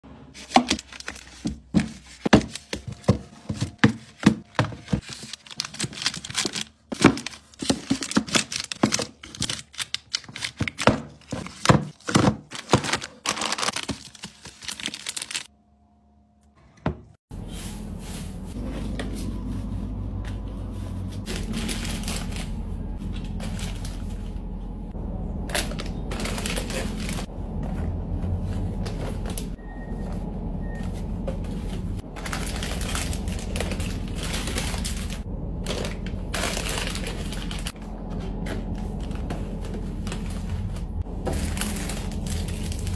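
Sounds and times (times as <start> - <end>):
plastic wrappers crinkling: 0.4 - 15.5, 21.2 - 24.3, 25.5 - 27.3, 32.0 - 42.9
low room hum: 14.6 - 42.9.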